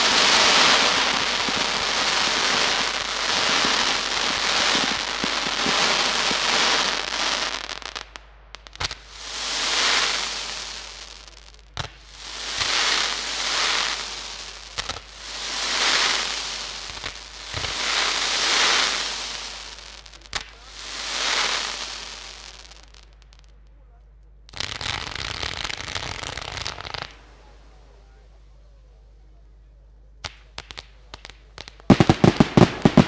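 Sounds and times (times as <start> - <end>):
sharp firework bangs: 0.0 - 22.8, 31.6 - 33.0
fireworks crackling and hissing: 0.0 - 33.0.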